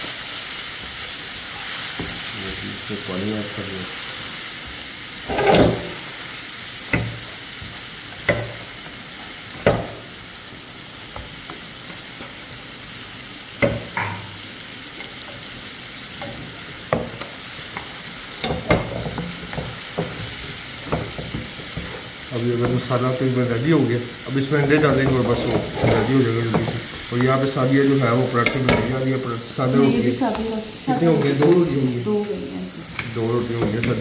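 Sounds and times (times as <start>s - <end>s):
spices sizzling in a pan: 0.0s - 34.0s
utensil scraping a pan: 5.2s - 6.1s, 24.4s - 29.1s.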